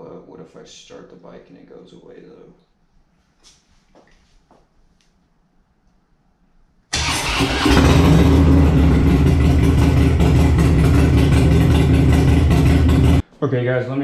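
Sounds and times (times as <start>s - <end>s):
motorcycle engine starting and running: 6.9s - 13.2s.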